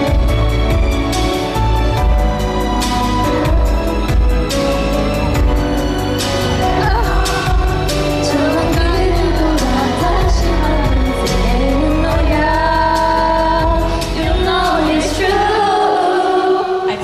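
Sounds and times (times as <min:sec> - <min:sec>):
backing music with bass: 0:00.0 - 0:15.8
woman singing pop song: 0:06.6 - 0:17.0.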